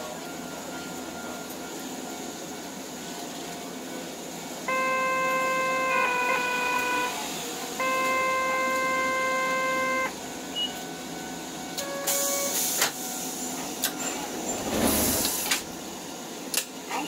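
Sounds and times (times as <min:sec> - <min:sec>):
short beep: 0:04.7 - 0:07.1, 0:07.8 - 0:10.7
buzzer warning tone: 0:04.7 - 0:07.2, 0:07.8 - 0:10.2.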